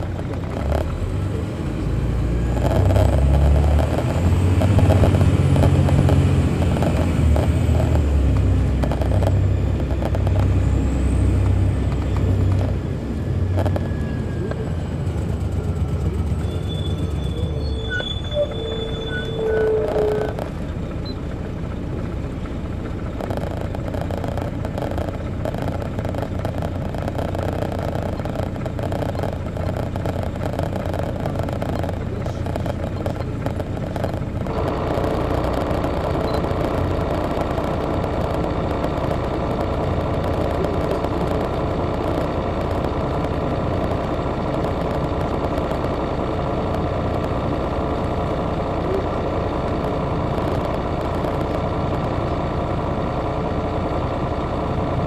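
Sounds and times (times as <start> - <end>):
bus diesel engine running: 0.0 - 55.0.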